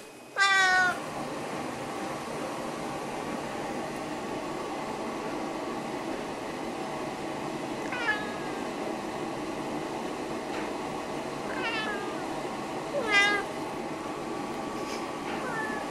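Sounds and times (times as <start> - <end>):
cat meowing: 0.4 - 1.0, 7.9 - 8.6, 11.5 - 12.2, 13.0 - 13.5, 15.4 - 15.9.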